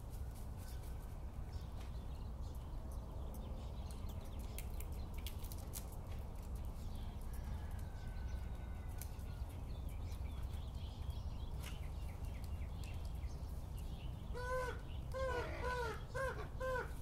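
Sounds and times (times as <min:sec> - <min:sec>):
raven calling: 0:14.3 - 0:17.0.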